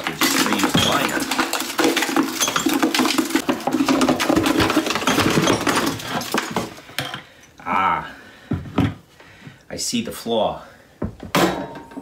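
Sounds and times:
plastic crackling and crinkling: 0.0s - 6.9s.

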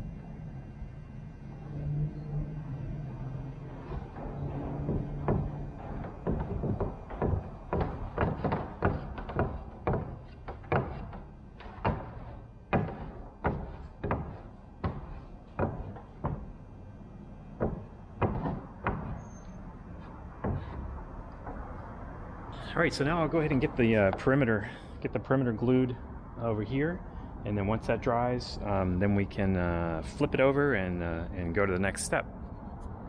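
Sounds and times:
hollow knocks and thumps: 3.7s - 16.6s, 17.6s - 21.9s.

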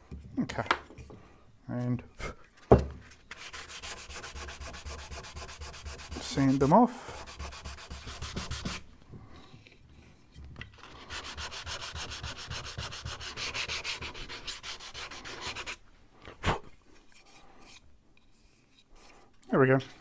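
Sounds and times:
sanding block rubbing wood: 3.3s - 8.8s, 10.8s - 15.8s.

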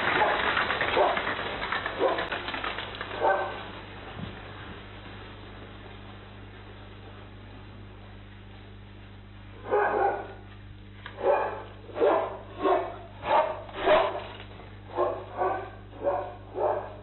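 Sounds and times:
animal barking: 0.0s - 1.3s, 1.9s - 2.5s, 3.1s - 3.7s, 9.6s - 10.5s, 11.2s - 14.3s, 14.9s - 17.0s.

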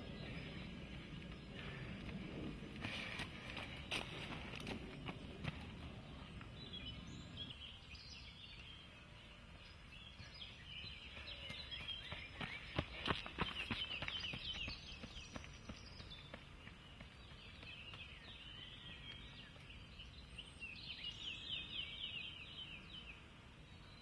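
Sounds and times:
running footsteps on dirt path: 0.0s - 6.8s, 9.5s - 19.8s
birds singing and chirping: 0.0s - 24.0s.

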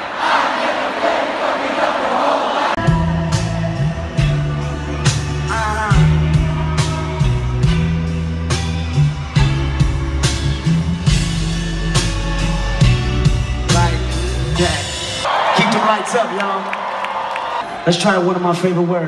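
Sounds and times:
person singing: 2.8s - 7.9s
bass-heavy music with beat: 2.8s - 15.3s.

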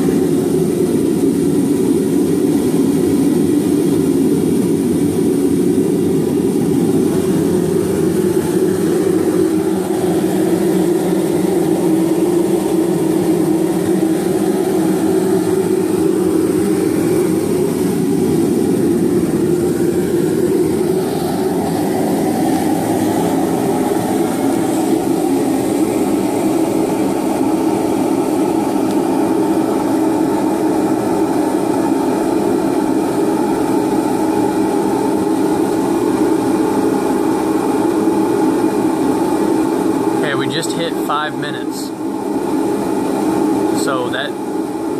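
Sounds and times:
gas forge burners rushing: 0.0s - 44.9s.

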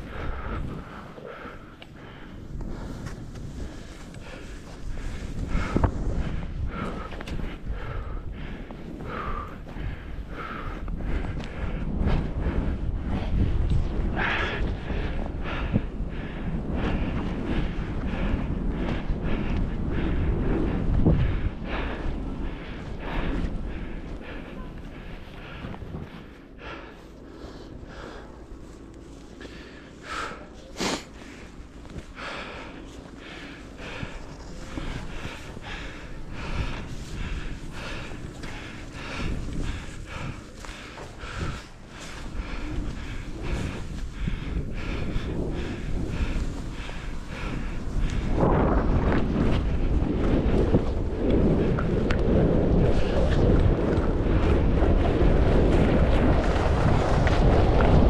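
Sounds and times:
person breathing hard: 0.0s - 58.0s
wind rushing over microphone: 0.0s - 58.0s
skis hissing through powder snow: 27.4s - 31.6s
skis hissing over snow: 30.2s - 31.4s.

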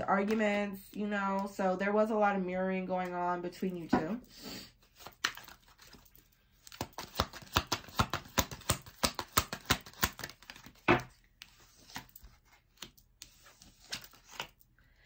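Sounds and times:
cards being shuffled: 0.2s - 1.5s, 4.8s - 14.6s.

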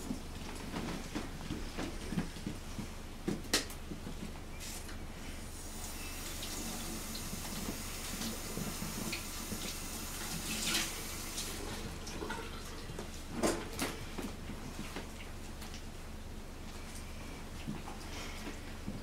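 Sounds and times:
water running from a tap: 5.7s - 11.6s.

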